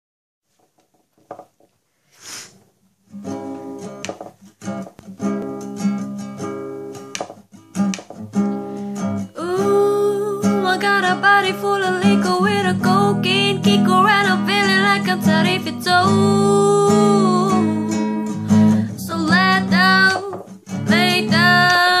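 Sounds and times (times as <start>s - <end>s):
faint taps: 0.5s - 1.8s, 4.0s - 5.6s, 7.1s - 8.3s
short hiss: 2.0s - 2.7s
acoustic guitar strumming chords: 3.1s - 22.0s.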